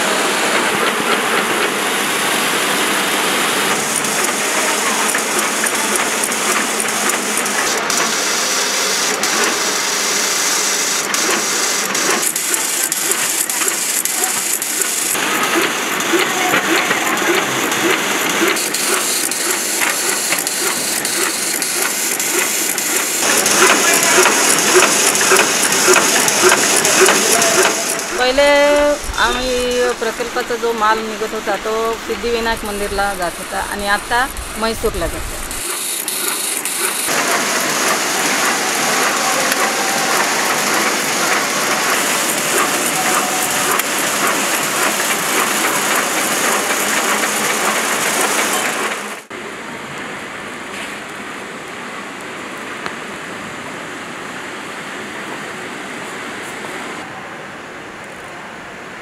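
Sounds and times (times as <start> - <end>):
machines clattering: 0.0 - 49.3
rapid clicking strokes: 3.6 - 28.4, 35.4 - 49.3.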